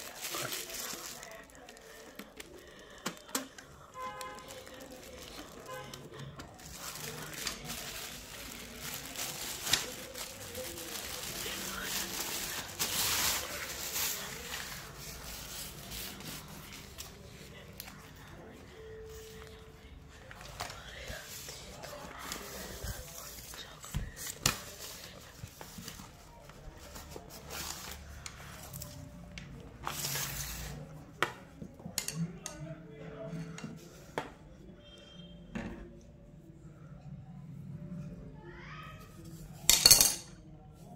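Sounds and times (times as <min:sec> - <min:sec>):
plastic wrapping crinkling: 0:00.0 - 0:03.4, 0:04.2 - 0:16.4.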